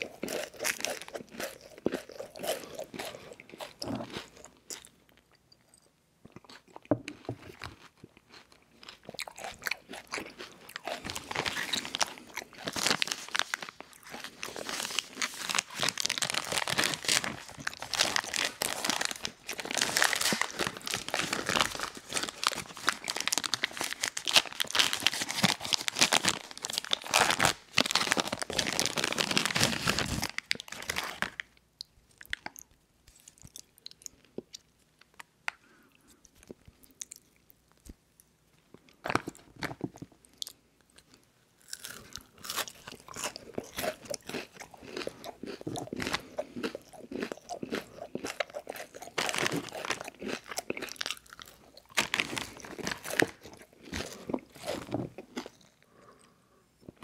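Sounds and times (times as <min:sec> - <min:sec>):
plastic wrapper crinkling and tearing: 0:10.9 - 0:31.6, 0:48.4 - 0:55.4.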